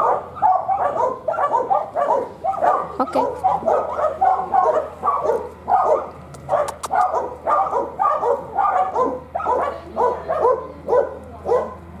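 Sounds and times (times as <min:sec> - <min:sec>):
dog barking: 0:00.0 - 0:11.9
sharp clicks: 0:06.3 - 0:07.1.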